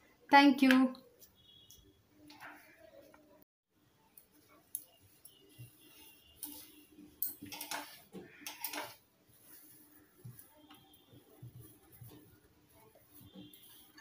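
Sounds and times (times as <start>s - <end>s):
fabric rustling: 7.8s - 14.0s.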